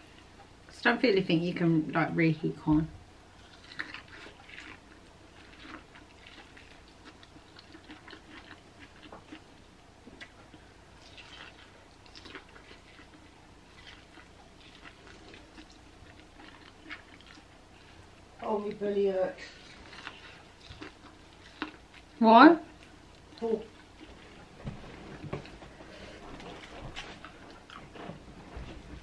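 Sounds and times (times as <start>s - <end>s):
chewing corn crunches: 3.4s - 18.2s, 19.4s - 24.4s.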